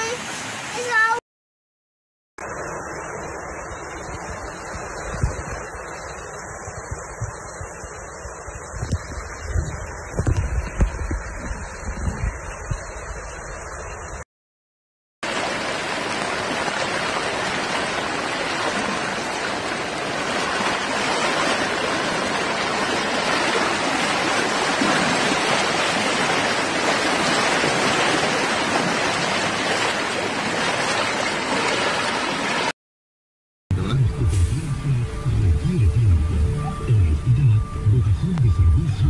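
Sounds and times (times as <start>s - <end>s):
floodwater rushing: 0.0s - 1.2s, 15.2s - 32.7s.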